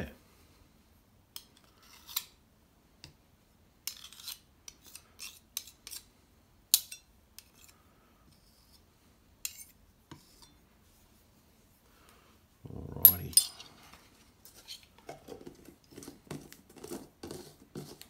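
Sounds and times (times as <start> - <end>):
knife scraping metal spoon: 1.4 - 2.4, 3.8 - 6.1, 6.7 - 8.8, 9.4 - 10.6.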